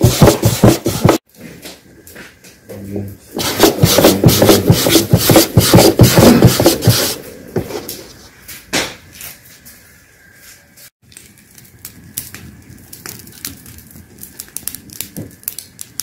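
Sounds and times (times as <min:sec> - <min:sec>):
scraping on wooden dough board: 0:00.0 - 0:01.2, 0:03.4 - 0:08.2.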